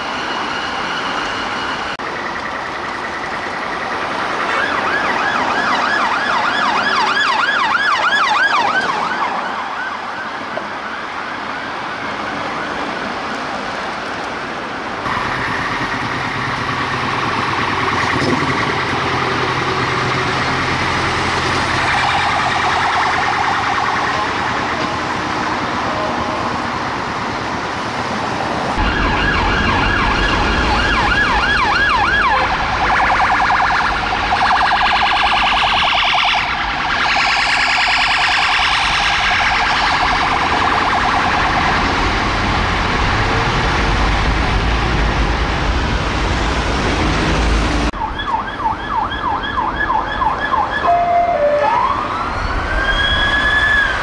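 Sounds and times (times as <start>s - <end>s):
police siren yelp and wail: 0.0s - 54.0s
deep low siren tone: 15.0s - 27.0s, 28.7s - 54.0s
second police siren yelping: 48.0s - 54.0s.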